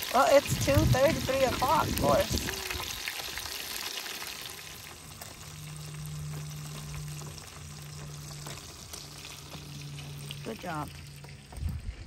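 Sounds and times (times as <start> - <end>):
fish deep-frying in oil: 0.0 - 11.6
low hum: 0.5 - 12.0.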